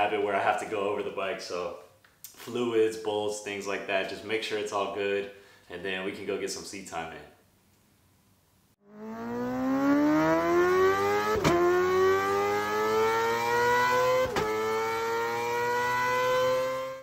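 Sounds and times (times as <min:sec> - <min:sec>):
vehicle engine accelerating: 0:08.8 - 0:17.0.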